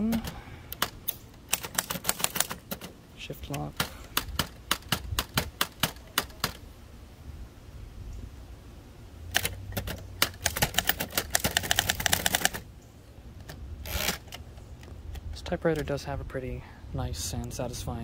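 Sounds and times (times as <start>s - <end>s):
typewriter keystrokes: 0.0s - 2.9s, 3.5s - 6.6s, 9.3s - 12.6s.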